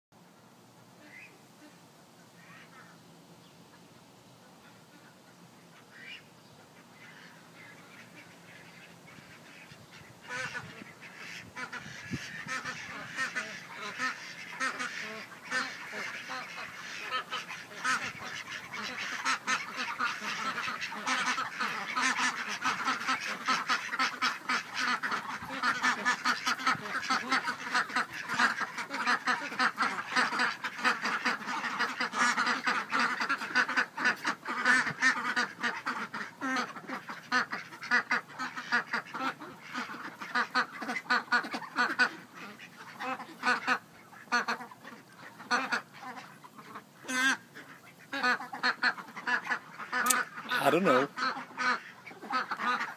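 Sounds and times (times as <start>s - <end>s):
ducks quacking: 0.9s - 3.0s, 3.7s - 52.9s.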